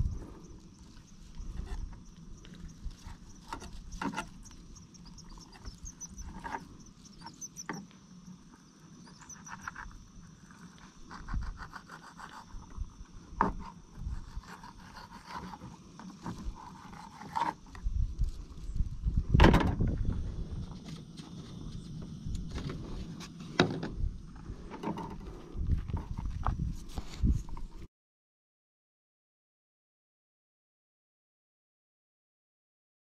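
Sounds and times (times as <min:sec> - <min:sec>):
insects chirring: 0:00.0 - 0:27.8
knife scraping fish: 0:11.1 - 0:12.6, 0:13.6 - 0:17.7.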